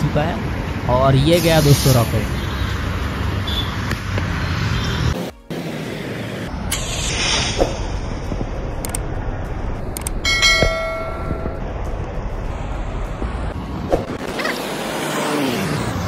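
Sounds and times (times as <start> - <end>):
outdoor noise: 0.0 - 16.0
bell ding: 10.3 - 11.6.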